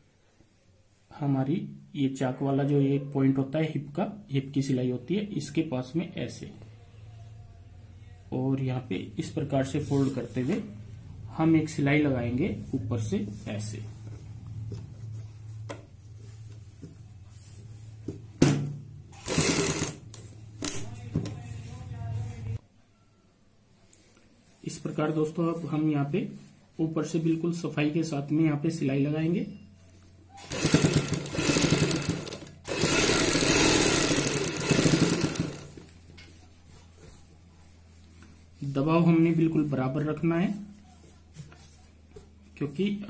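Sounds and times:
sewing machine stitching: 0:19.2 - 0:20.0, 0:30.4 - 0:35.9
sewing machine clicks: 0:30.5 - 0:35.8.

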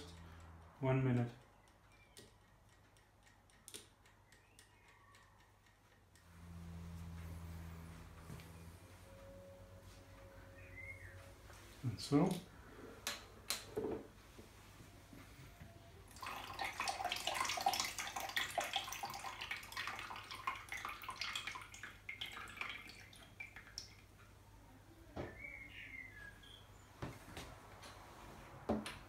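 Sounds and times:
liquid pouring into plastic jug: 0:16.1 - 0:24.0.

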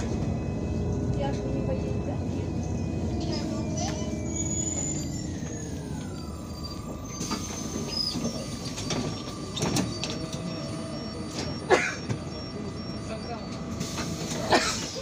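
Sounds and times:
bus diesel engine rumble: 0:00.0 - 0:15.0
bus body rattles and knocks: 0:06.9 - 0:10.5.

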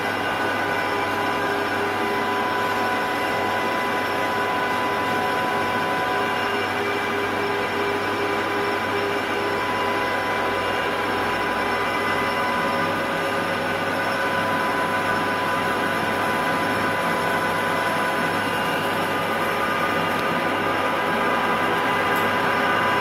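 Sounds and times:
lathe running: 0:00.0 - 0:23.0.

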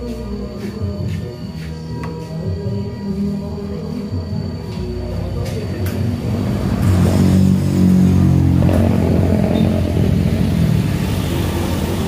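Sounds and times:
motorbike engine passing: 0:06.1 - 0:12.0.

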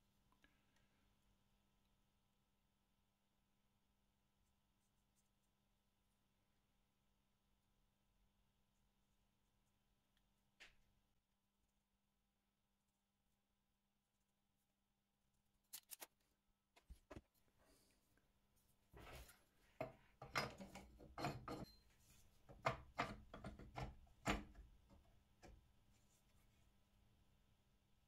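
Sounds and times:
objects knocking and scraping: 0:19.0 - 0:25.6.

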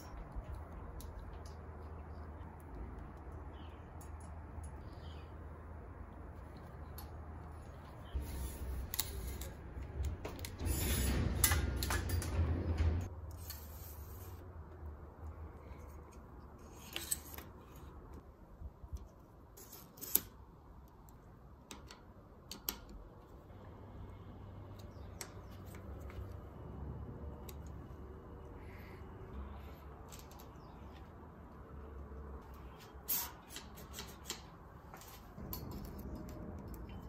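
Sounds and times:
small metal parts clicking: 0:29.8 - 0:30.8.

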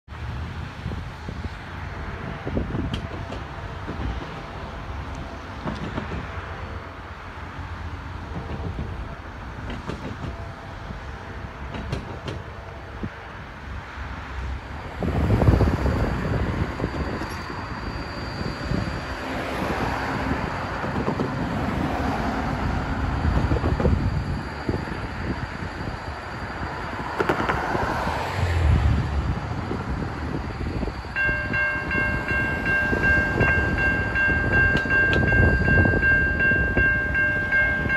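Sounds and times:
wind: 0:00.0 - 0:37.9
cars driving over railroad crossing: 0:00.2 - 0:37.9
steady low rumble: 0:28.4 - 0:34.5.

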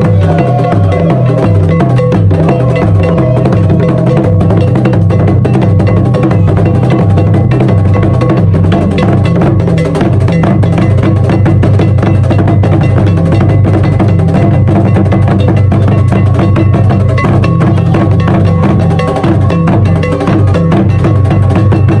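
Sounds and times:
drum ensemble playing: 0:00.0 - 0:22.0.

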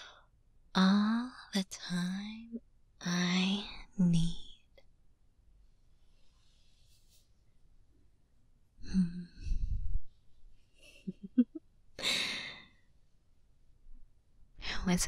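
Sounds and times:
woman breathing: 0:12.0 - 0:12.9.

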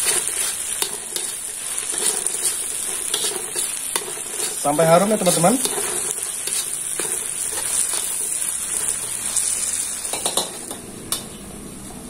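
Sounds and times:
paste sizzling in oil: 0:00.0 - 0:10.8
metal spatula scraping a wok: 0:00.0 - 0:11.4.

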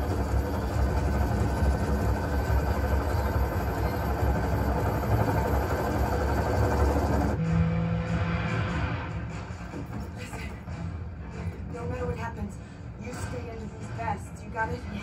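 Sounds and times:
helicopter and engine rumble: 0:00.0 - 0:07.4.

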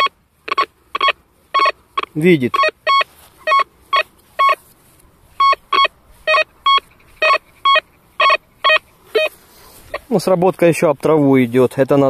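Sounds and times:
metal detector beeps: 0:00.0 - 0:04.6, 0:05.4 - 0:10.0.

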